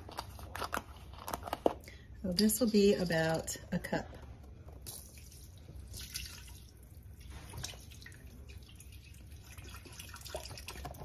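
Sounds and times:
faint splashing and dripping: 0:04.8 - 0:11.0.

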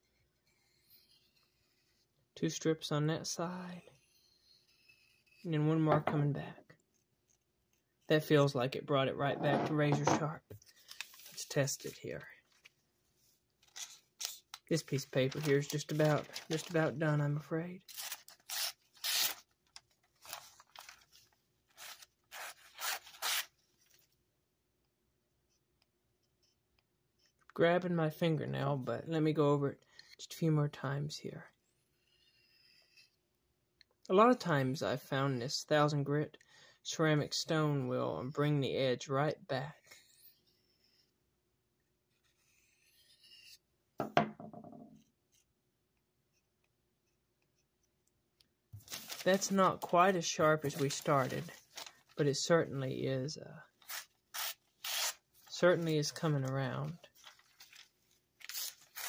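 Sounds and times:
stone knocking on wooden table: 0:09.4 - 0:10.2, 0:44.0 - 0:45.0
knife blade slicing paper: 0:58.4 - 0:59.0.

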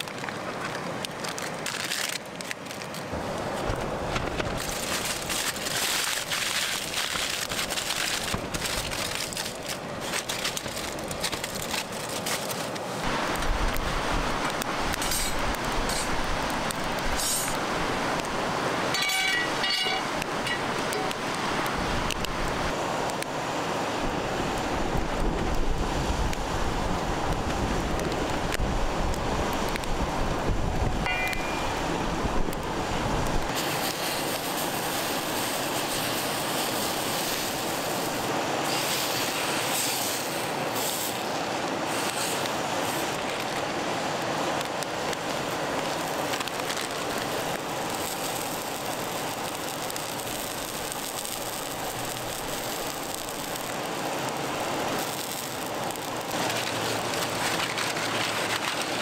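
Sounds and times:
river water rushing: 0:00.0 - 0:59.0
wind rumble on microphone: 0:24.0 - 0:33.6.

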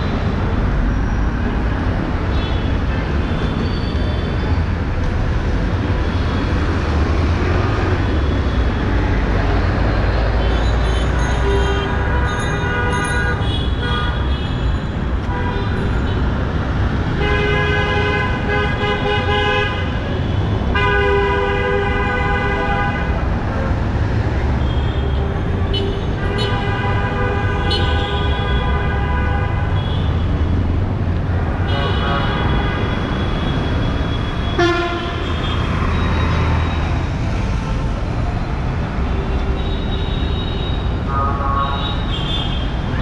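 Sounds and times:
traffic rumble: 0:00.0 - 0:43.0
vehicle horns honking: 0:31.6 - 0:35.7.

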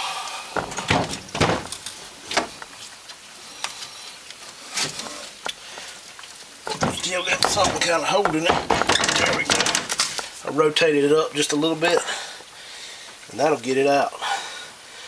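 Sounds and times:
metal knocks and clunks: 0:00.6 - 0:02.7, 0:06.7 - 0:10.2.

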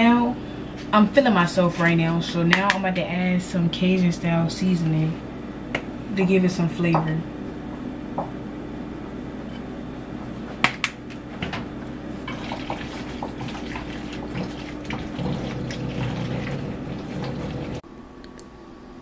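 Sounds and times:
wooden spoon stirring in a saucepan: 0:12.2 - 0:17.8.

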